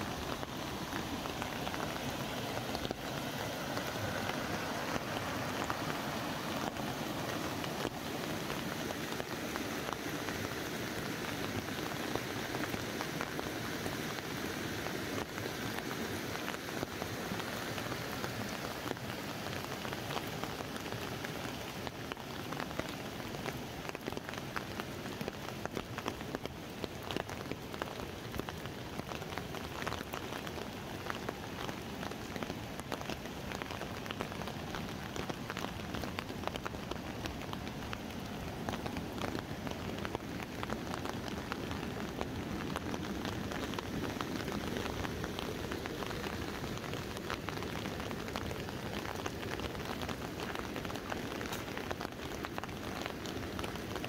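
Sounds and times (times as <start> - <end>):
river rapids rushing: 0.0 - 21.7
rain on an umbrella: 0.0 - 54.0.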